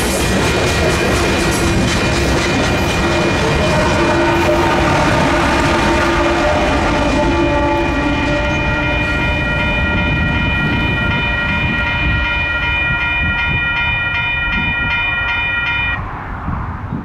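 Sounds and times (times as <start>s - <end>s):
train rumbling by: 0.0s - 17.0s
high-pitched ringing tone: 8.4s - 16.0s.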